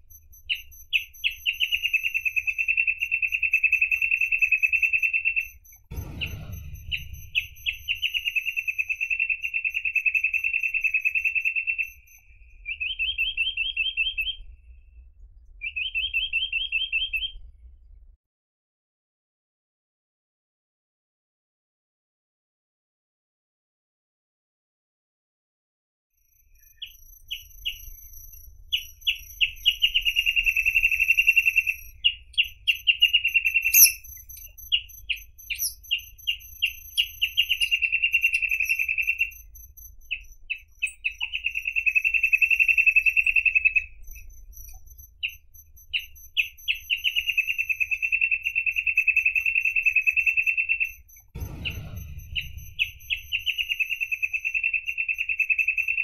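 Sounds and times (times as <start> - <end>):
bird singing buzzy trills: 0.0 - 14.6, 26.5 - 56.0
faint low rumble: 5.6 - 9.1, 51.3 - 54.4
low whoosh: 5.9 - 8.3, 51.4 - 53.7.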